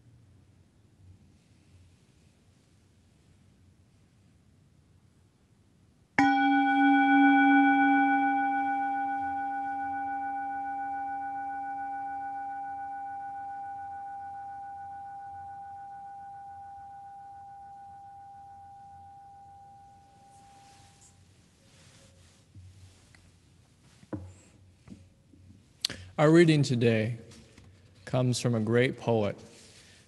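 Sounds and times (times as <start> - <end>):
singing bowl ringing: 6.2 - 21.2.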